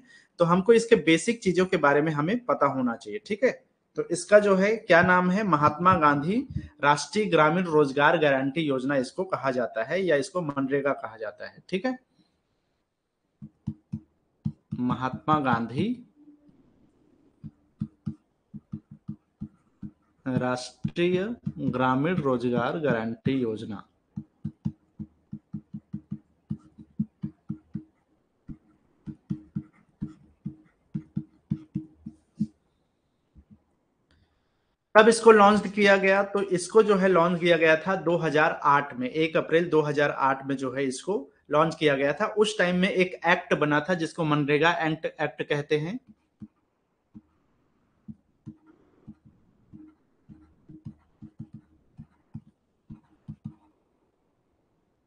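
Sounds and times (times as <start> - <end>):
stylus tapping on pen tablet: 13.4 - 15.8, 17.4 - 23.4, 24.1 - 32.6, 46.0 - 47.4, 48.0 - 53.8.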